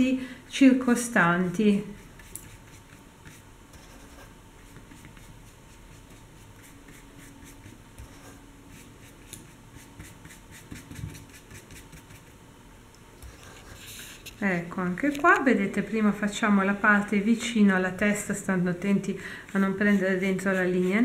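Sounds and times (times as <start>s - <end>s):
paintbrush strokes on paper: 1.9s - 12.4s, 13.3s - 14.4s, 19.6s - 21.0s.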